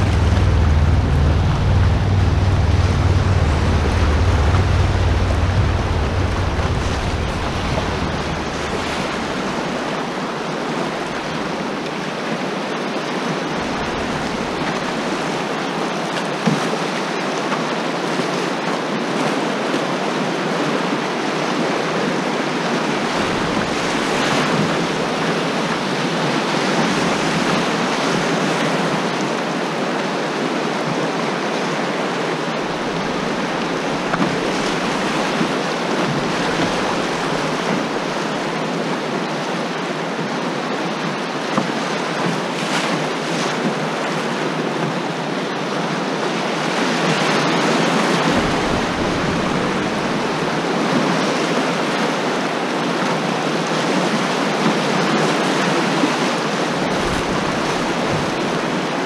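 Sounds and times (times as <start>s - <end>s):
wind on microphone: 0.0s - 12.1s, 22.5s - 28.9s, 46.4s - 52.6s, 55.0s - 59.0s
whitewater rushing: 0.0s - 59.0s.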